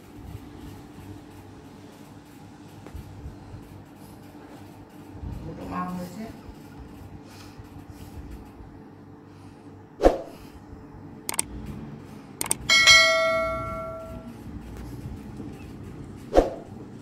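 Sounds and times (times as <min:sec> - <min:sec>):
mouse clicks: 0:11.3 - 0:11.5, 0:12.4 - 0:12.6
bright bell chime: 0:12.7 - 0:14.3.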